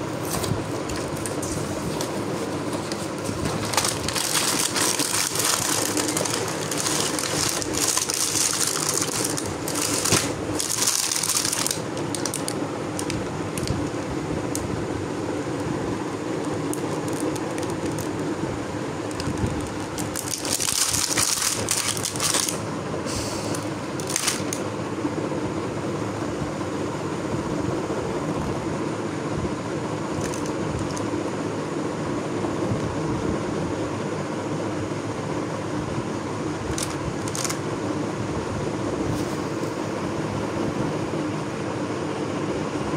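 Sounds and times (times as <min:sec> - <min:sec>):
steady background whir: 0:00.0 - 0:42.9
cardboard and plastic crinkling: 0:00.2 - 0:14.0, 0:16.4 - 0:18.4, 0:19.0 - 0:22.7, 0:23.5 - 0:24.6, 0:30.2 - 0:31.1, 0:36.7 - 0:37.6.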